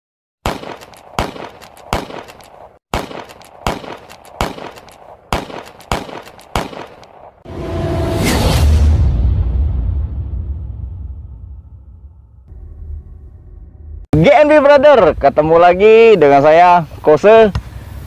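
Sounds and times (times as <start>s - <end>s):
gunshots with ringing tail: 0.4s - 7.4s
deep rumbling swell: 7.5s - 14.1s.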